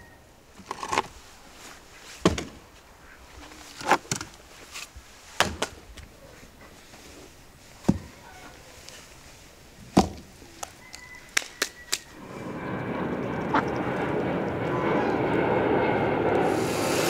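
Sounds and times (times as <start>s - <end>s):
logs knocking on ground: 10.0s - 10.3s.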